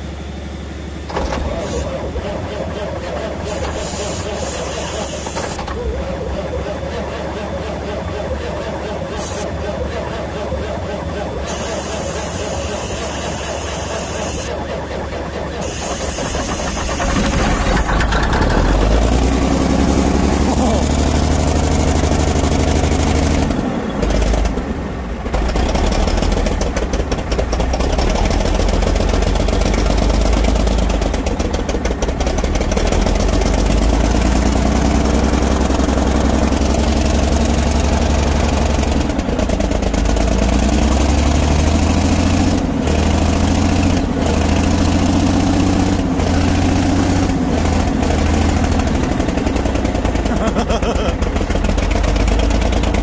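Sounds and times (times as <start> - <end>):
truck engine running: 0.0 - 53.0.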